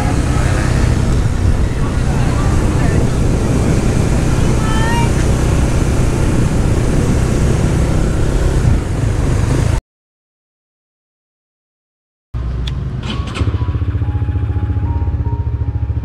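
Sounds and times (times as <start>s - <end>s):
motorcycle engine running: 0.0s - 9.8s, 13.2s - 16.0s.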